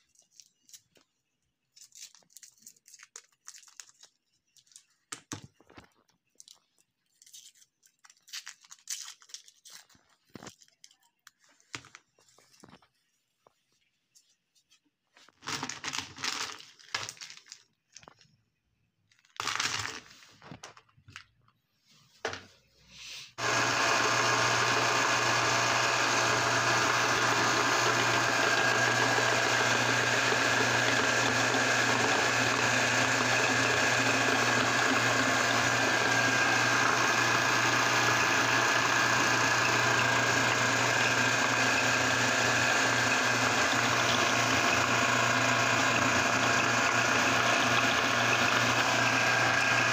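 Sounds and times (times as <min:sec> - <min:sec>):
meat grinder droning: 0:23.4 - 0:49.9.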